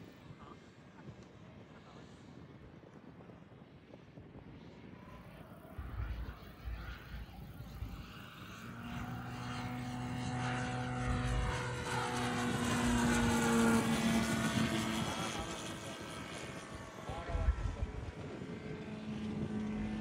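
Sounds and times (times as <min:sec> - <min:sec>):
model plane engine droning: 0:00.0 - 0:20.0.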